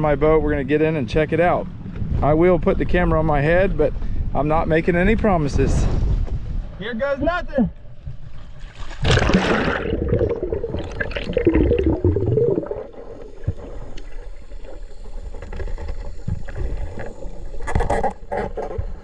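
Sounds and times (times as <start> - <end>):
water rushing past microphone: 8.1 - 17.6
splash into water: 8.6 - 13.5
bubbles gurgling underwater: 9.0 - 14.3.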